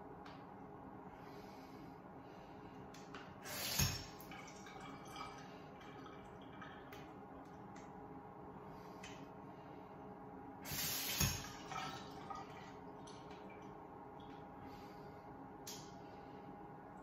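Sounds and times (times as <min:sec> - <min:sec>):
faint room hum: 0:00.0 - 0:17.0.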